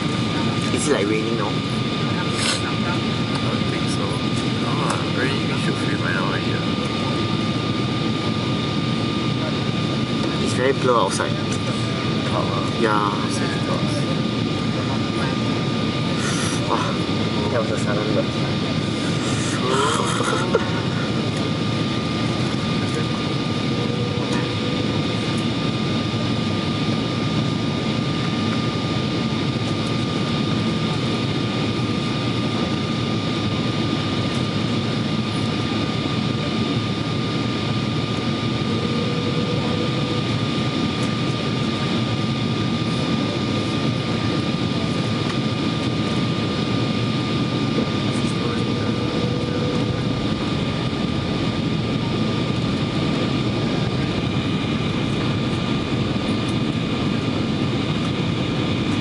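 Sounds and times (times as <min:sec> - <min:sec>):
jet engine noise with whine: 0:00.0 - 0:59.0
airflow rush: 0:18.8 - 0:25.2.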